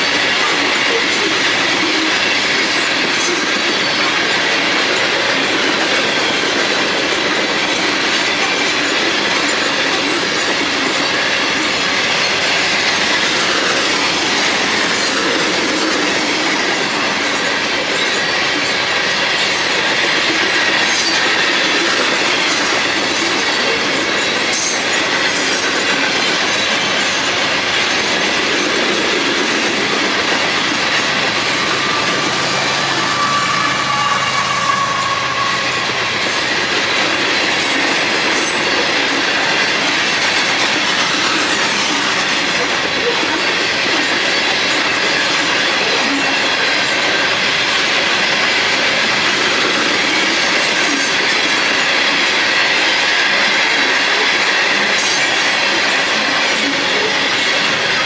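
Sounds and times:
steel wheels on rail: 0:00.0 - 0:58.0.

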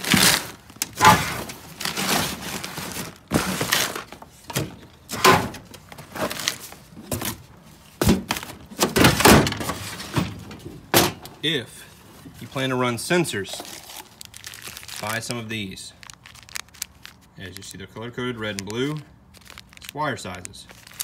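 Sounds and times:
metal drawers handled: 0:00.0 - 0:07.4, 0:08.0 - 0:11.4
knocks scrapes and thuds: 0:00.0 - 0:11.2.

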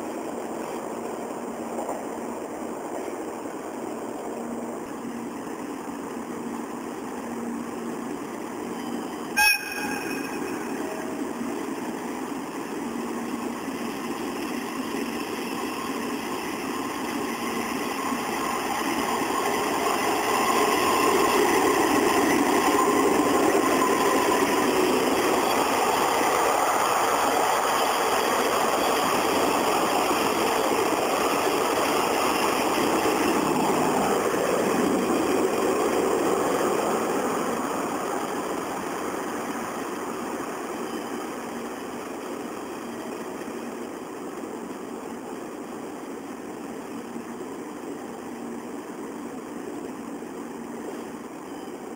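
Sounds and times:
train rumbling on rails: 0:00.0 - 0:51.9
train horn blast: 0:09.3 - 0:10.8.

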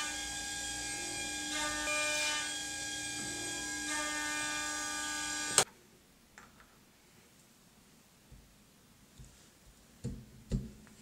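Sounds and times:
electric buzz: 0:00.0 - 0:05.6.

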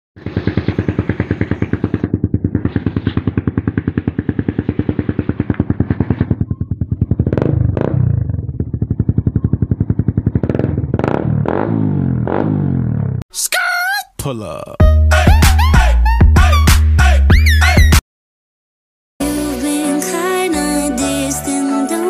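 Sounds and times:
motorcycle engine idling and revving: 0:00.2 - 0:13.2.

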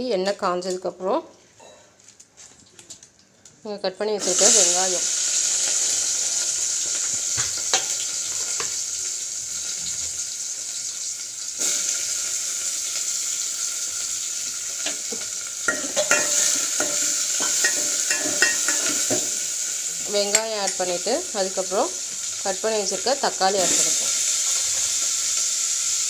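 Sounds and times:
onions sizzling in hot oil: 0:04.2 - 0:26.0
spoon scraping metal pot: 0:15.7 - 0:19.3.

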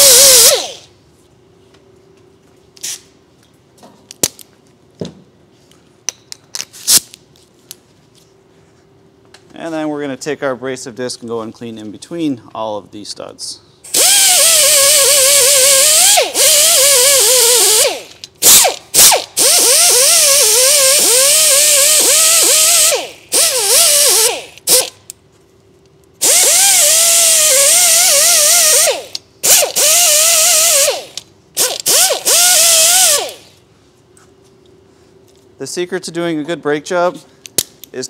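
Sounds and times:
pneumatic grinder whining: 0:00.0 - 0:00.9, 0:13.9 - 0:25.0, 0:26.2 - 0:33.6.

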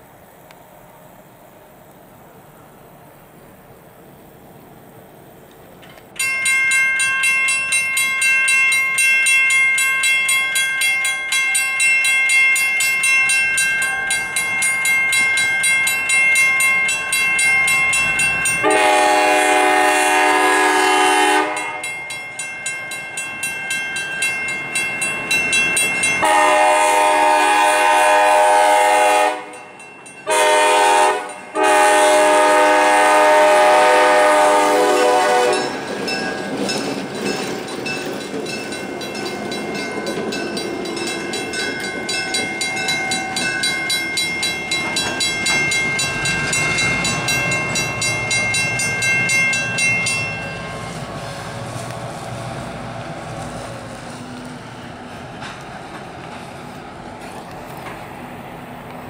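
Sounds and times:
crossing warning bells ringing: 0:05.9 - 0:58.9
locomotive air horn: 0:18.6 - 0:21.9, 0:26.2 - 0:29.6, 0:30.3 - 0:35.8.

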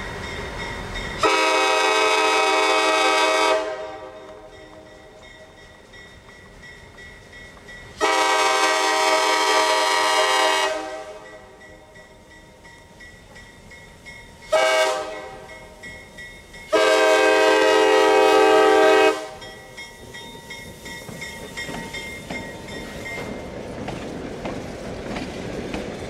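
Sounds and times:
locomotive horn blasts: 0:01.2 - 0:04.5, 0:08.0 - 0:11.6, 0:14.5 - 0:15.7, 0:16.7 - 0:19.5
wheels clicking over rail joints: 0:04.1 - 0:08.0, 0:19.3 - 0:26.0.

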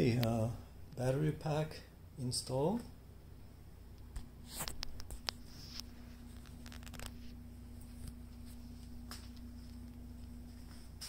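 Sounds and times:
low electrical hum: 0:00.0 - 0:11.0
phone handling clicks and rustles: 0:04.0 - 0:07.3.

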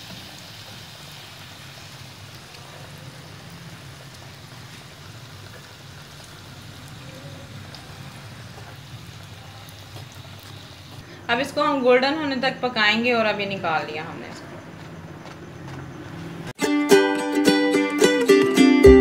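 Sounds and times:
oil sizzling and crackling: 0:00.0 - 0:11.6.

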